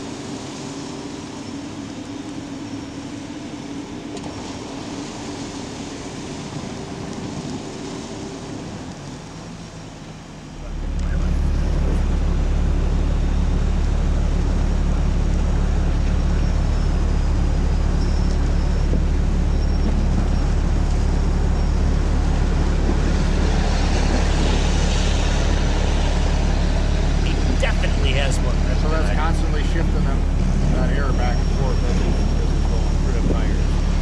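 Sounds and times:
diesel engine idling: 8.8s - 34.0s.

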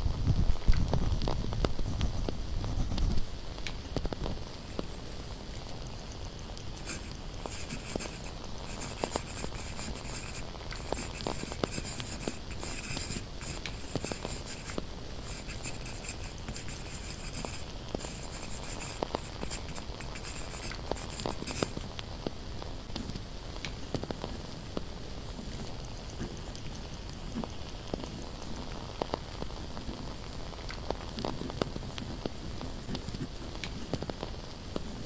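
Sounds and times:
candles crackling and popping: 0.0s - 35.0s
pen scratching on paper: 6.8s - 21.8s.

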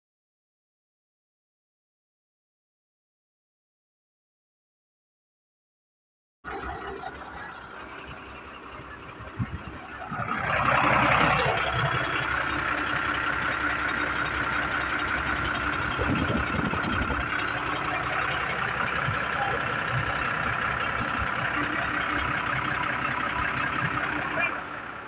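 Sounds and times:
truck diesel engine idling: 6.5s - 25.0s.

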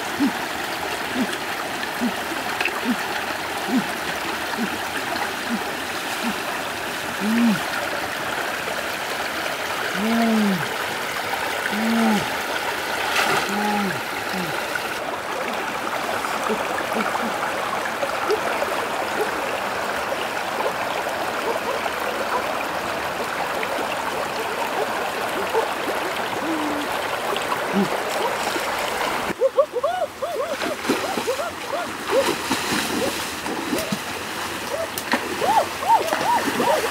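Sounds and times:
short low vocal sounds: 0.0s - 0.4s, 1.1s - 1.4s, 3.6s - 4.8s, 7.1s - 7.8s, 9.9s - 10.7s, 11.6s - 12.4s, 13.4s - 14.6s, 27.7s - 28.0s
stream running over rocks: 0.0s - 36.9s.

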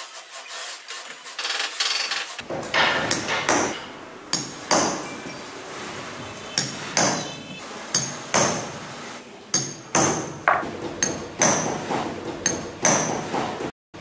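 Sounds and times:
hammer striking metal punch: 2.6s - 5.2s, 6.6s - 7.3s, 7.9s - 8.8s, 9.5s - 13.4s.

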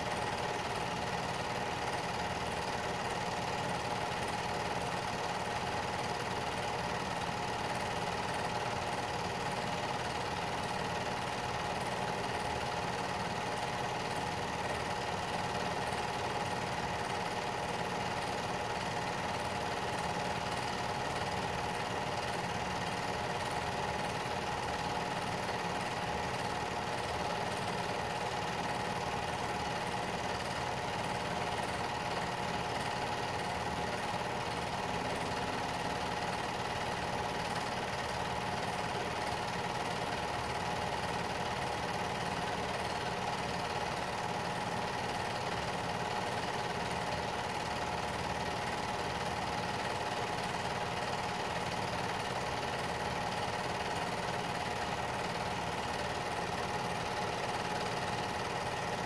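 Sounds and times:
film projector whirring: 0.0s - 59.0s.

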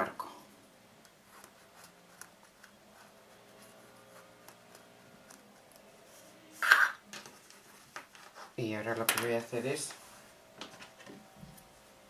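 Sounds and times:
pen scratching on fabric: 1.2s - 5.8s.

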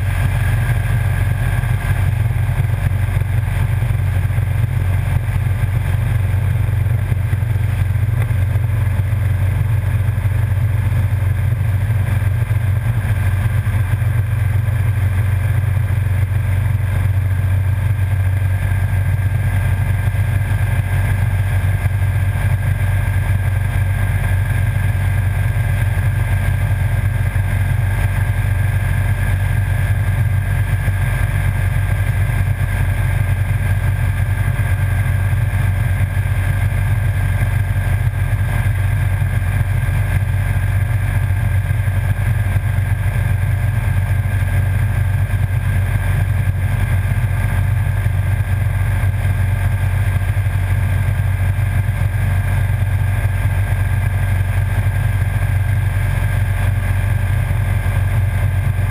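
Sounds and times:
motorcycle engine drone: 0.0s - 58.9s
wind and road noise: 0.0s - 58.9s.

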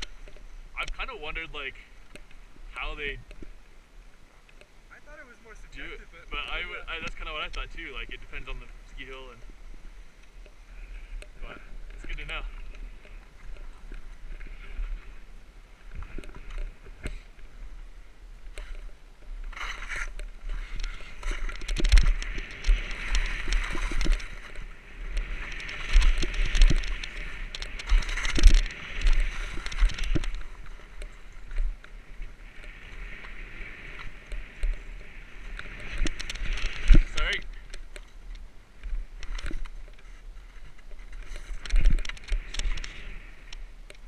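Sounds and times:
skis scraping and hissing on snow: 19.4s - 21.5s.

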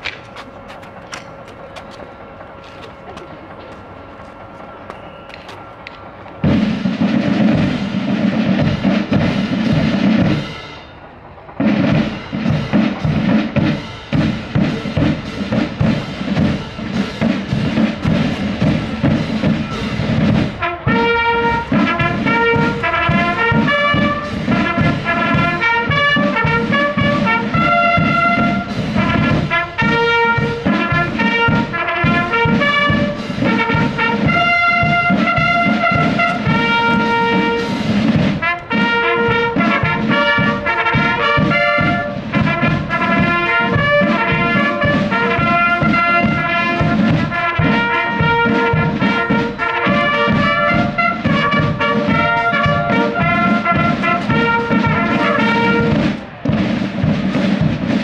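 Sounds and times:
marching drums: 0.0s - 58.0s
brass horns playing tune: 11.9s - 57.1s.

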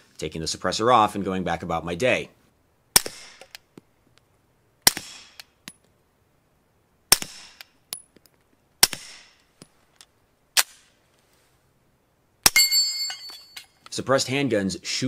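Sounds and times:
suppressed pistol shots: 2.9s - 3.6s, 4.8s - 5.6s, 7.1s - 7.8s, 8.8s - 9.4s, 10.6s - 10.9s.

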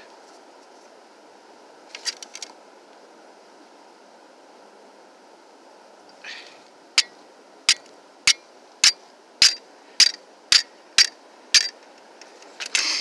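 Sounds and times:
saw back striking flint rock: 7.7s - 11.7s.

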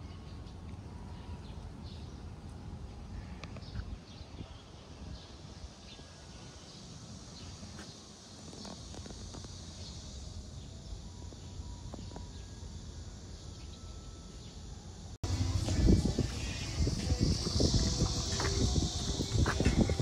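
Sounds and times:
high-pitched insect buzz: 15.2s - 20.0s
low rumble: 15.2s - 20.0s.

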